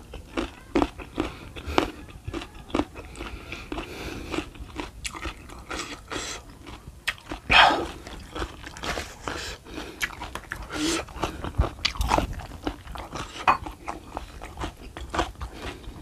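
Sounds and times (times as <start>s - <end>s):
person chewing food: 0.0s - 16.0s
loud mouth noise: 7.5s - 8.0s.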